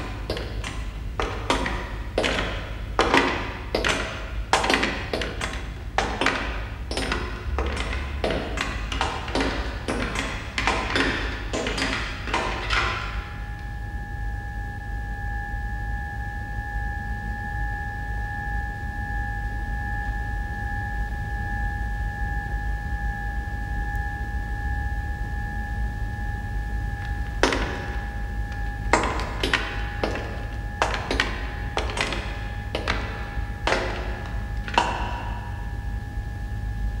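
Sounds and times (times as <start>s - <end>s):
sharp metallic knocks: 0.0s - 13.3s, 27.4s - 35.6s
steady low hum: 0.0s - 37.0s.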